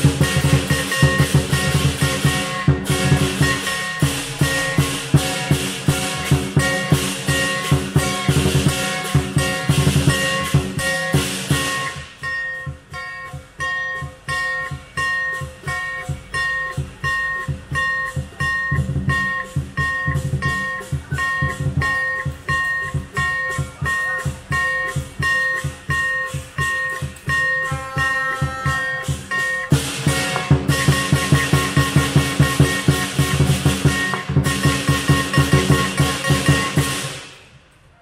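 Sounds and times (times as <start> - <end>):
drum beating rapidly: 0.0 - 37.3
ringing gong: 0.0 - 37.3
cymbals clashing: 0.0 - 38.0.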